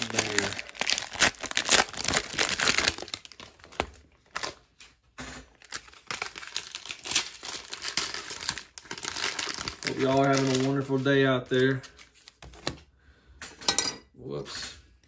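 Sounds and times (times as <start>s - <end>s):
plastic wrappers crinkling and tearing: 0.0s - 4.8s, 5.5s - 12.6s.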